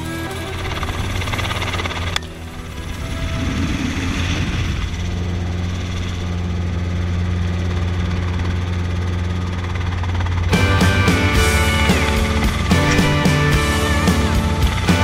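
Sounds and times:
helicopter engine and rotors droning: 0:00.0 - 0:15.0.

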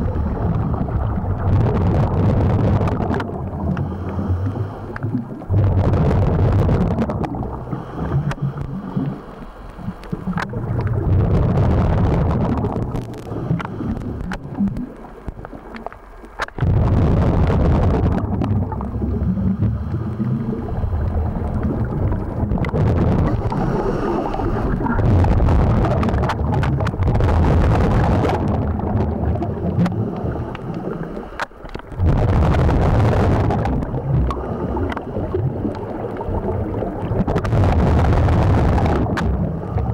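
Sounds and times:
diver breathing through regulator: 0:00.0 - 0:01.7, 0:03.6 - 0:05.2, 0:07.4 - 0:10.3, 0:12.8 - 0:14.6, 0:18.8 - 0:22.0, 0:23.2 - 0:25.6, 0:29.5 - 0:31.6, 0:34.2 - 0:35.6.

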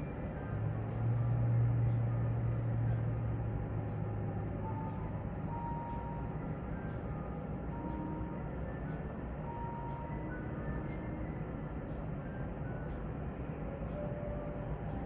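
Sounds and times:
faint high ticks: 0:00.8 - 0:02.1, 0:02.8 - 0:03.2, 0:13.8 - 0:15.0.

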